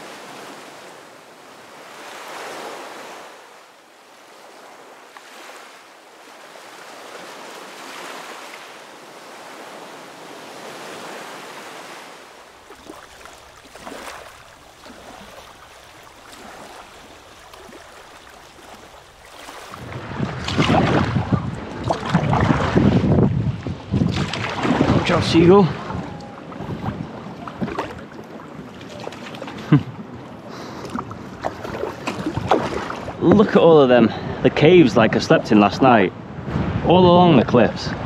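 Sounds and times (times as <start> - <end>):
small waves lapping on rocks: 0.0 - 22.8, 24.1 - 33.6
kayak paddle splashing: 0.0 - 33.6
wind buffeting microphone: 18.8 - 33.6, 36.0 - 38.0.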